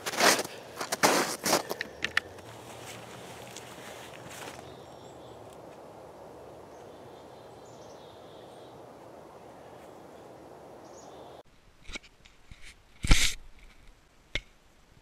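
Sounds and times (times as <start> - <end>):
forest background hiss: 1.6 - 11.6.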